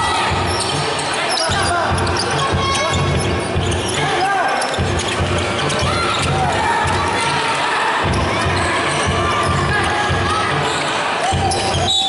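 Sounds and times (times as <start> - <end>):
sneakers squeaking: 0.0 - 12.0
basketball bouncing on court: 1.5 - 4.0, 4.6 - 7.3, 8.0 - 10.5.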